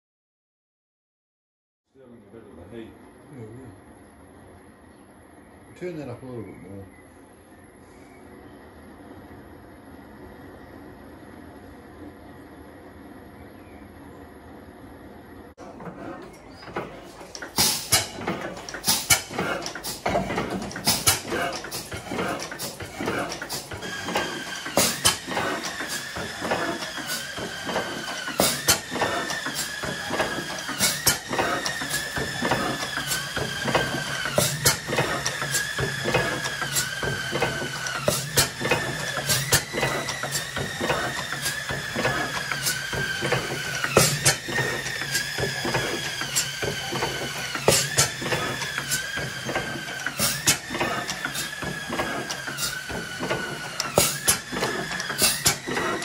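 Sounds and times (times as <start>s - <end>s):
engine whine: 2.2s - 56.0s
engine mechanical clatter: 15.5s - 56.0s
oil engine firing strokes: 15.8s - 56.0s.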